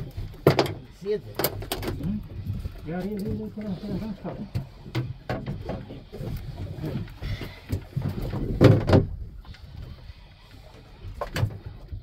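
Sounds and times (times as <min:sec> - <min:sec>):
knocks and thuds on boat deck: 0:00.2 - 0:02.0, 0:04.3 - 0:09.3.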